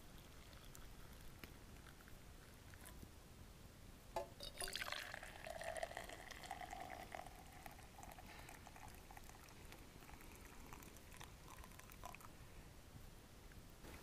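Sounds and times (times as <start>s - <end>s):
tea pouring into metal mug: 0.1s - 3.0s, 4.2s - 12.4s.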